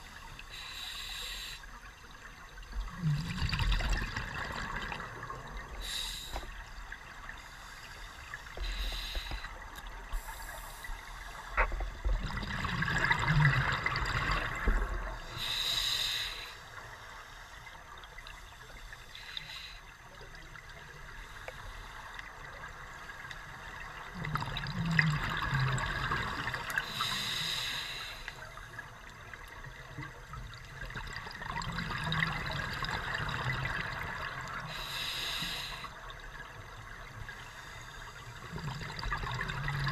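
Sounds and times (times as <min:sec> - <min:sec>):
exhaled air bubbling underwater: 0:00.0 - 0:39.9
scuba inhale hiss: 0:00.4 - 0:01.8, 0:05.8 - 0:06.8, 0:07.4 - 0:11.5, 0:15.2 - 0:17.7, 0:18.5 - 0:19.9, 0:26.8 - 0:28.6, 0:34.5 - 0:36.1.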